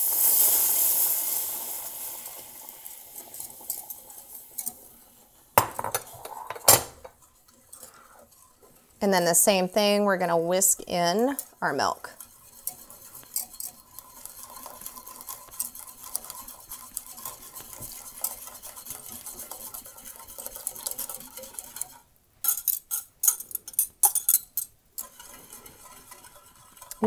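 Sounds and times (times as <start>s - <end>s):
wire whisk swishing: 12.1s - 22.0s, 25.0s - 27.0s
whisk knocking against pot: 12.2s - 22.0s, 25.0s - 27.0s.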